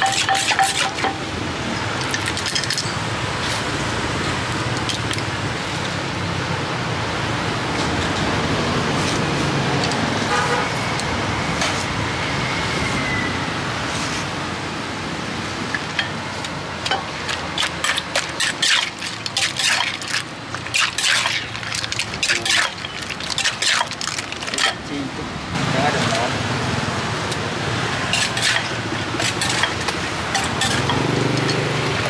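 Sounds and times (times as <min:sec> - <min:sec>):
street traffic noise: 0:00.0 - 0:32.0
vehicle horn: 0:10.3 - 0:10.8.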